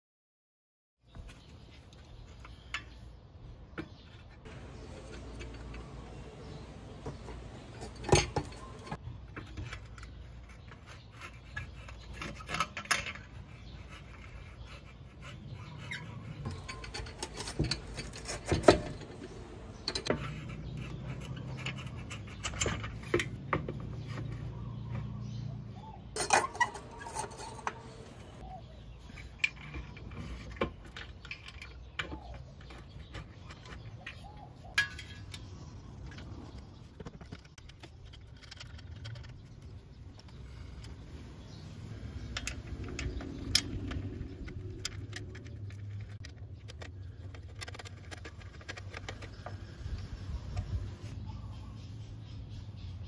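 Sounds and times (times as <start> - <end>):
metal clinks and knocks: 7.0 - 10.1, 26.2 - 28.4.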